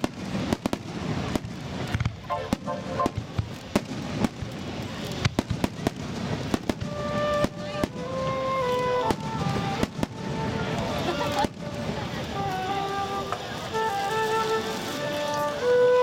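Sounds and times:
music with long held notes: 0:06.8 - 0:16.0.

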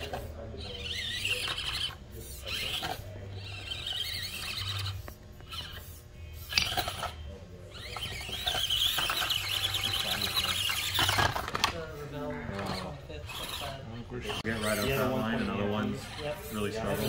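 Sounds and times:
small electric motor whining: 0:00.0 - 0:17.0.

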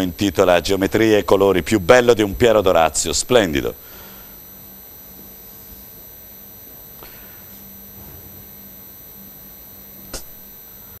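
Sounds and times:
low electrical hum: 0:00.0 - 0:11.0
steady background hiss: 0:00.0 - 0:11.0
sharp click: 0:10.1 - 0:10.4.

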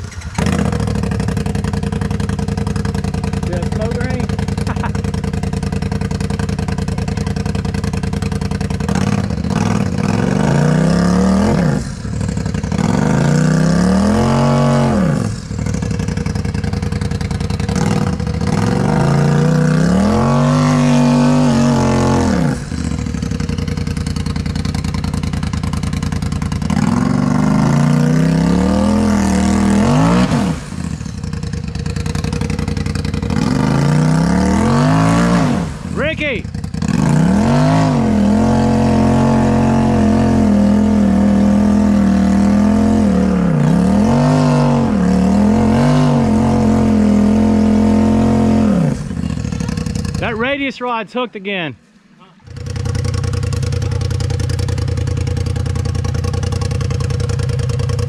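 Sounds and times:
engine revving hard: 0:00.0 - 0:02.0, 0:02.6 - 0:04.9, 0:08.8 - 0:16.3, 0:17.4 - 0:23.6, 0:26.5 - 0:31.3, 0:32.0 - 0:51.0.

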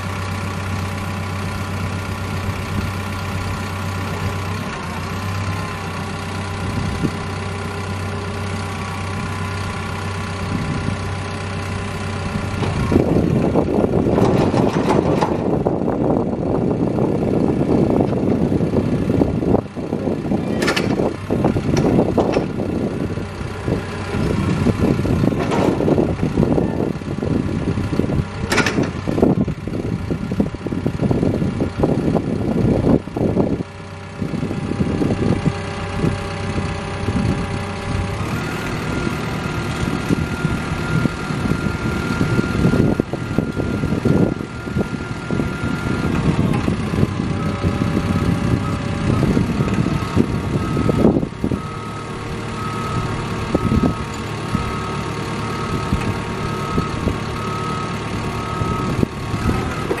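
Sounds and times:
diesel engine running: 0:00.0 - 1:00.0.

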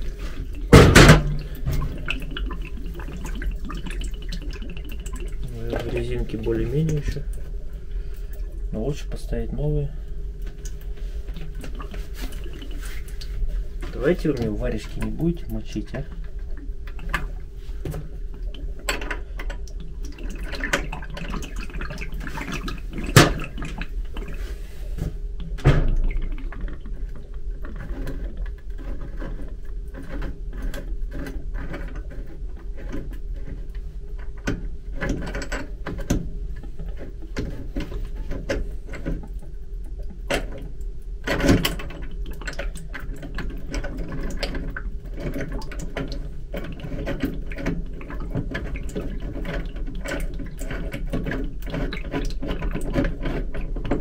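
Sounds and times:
steady low hum: 0:00.0 - 0:54.0
metal clicks taps and clanks: 0:17.9 - 0:21.4.

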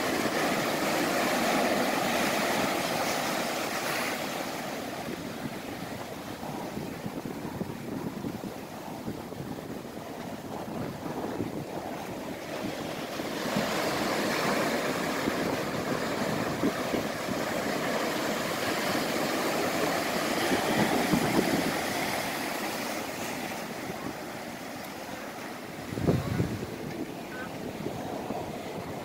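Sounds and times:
waves breaking against rocks: 0:00.0 - 0:29.0.

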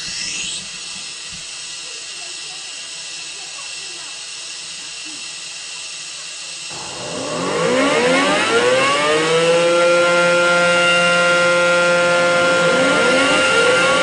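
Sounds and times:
steady hiss: 0:00.0 - 0:07.2
electric motor whine: 0:00.0 - 0:14.0.

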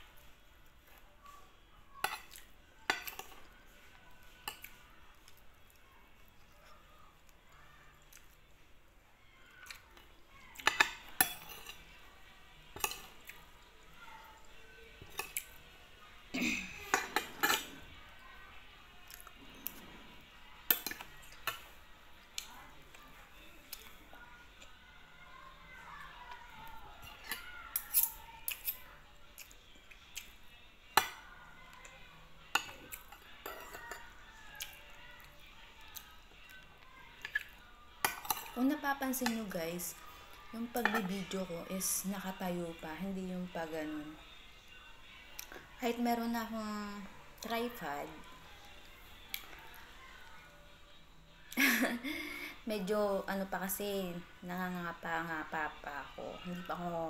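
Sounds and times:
cutlery clinking on a plate: 0:02.0 - 0:03.5, 0:10.6 - 0:11.9, 0:12.8 - 0:13.2, 0:16.9 - 0:17.8, 0:32.5 - 0:34.1, 0:37.2 - 0:38.6, 0:40.8 - 0:41.2.

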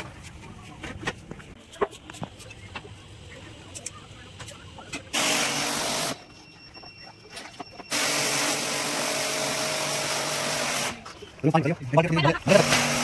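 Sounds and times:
pressure washer humming and spraying: 0:05.1 - 0:06.2, 0:07.9 - 0:11.1, 0:12.4 - 0:13.0.

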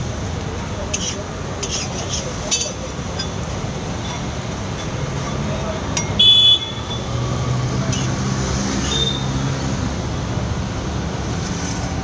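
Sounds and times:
metal spatula clanking on griddle: 0:00.9 - 0:06.2.

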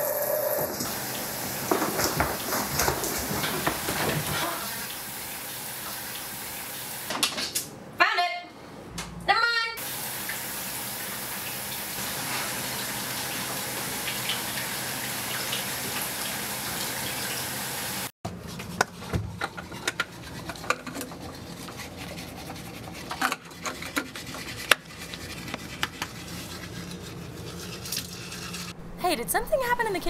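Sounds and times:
water running from a tap: 0:00.1 - 0:07.1, 0:09.8 - 0:18.1.

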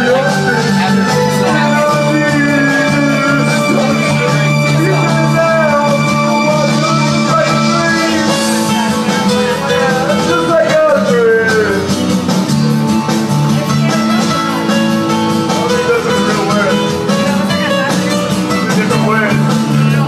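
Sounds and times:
man singing into microphone: 0:00.0 - 0:12.0
rock backing track with guitar: 0:00.0 - 0:20.0.

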